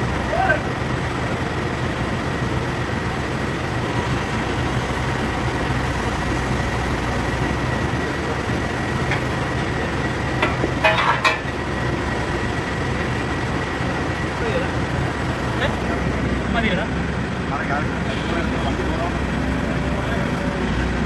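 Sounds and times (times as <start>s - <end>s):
excavator diesel engine running: 0.0s - 21.0s
sharp metal clanks: 10.4s - 11.5s.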